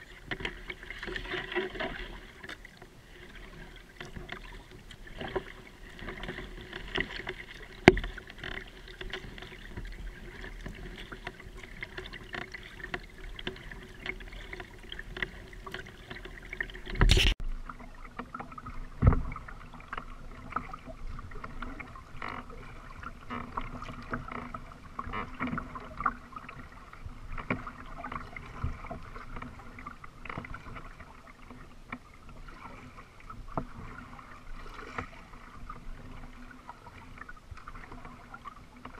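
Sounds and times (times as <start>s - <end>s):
kayak knocks: 0.0s - 17.4s, 18.1s - 19.4s
paddle water splashing: 0.0s - 38.9s.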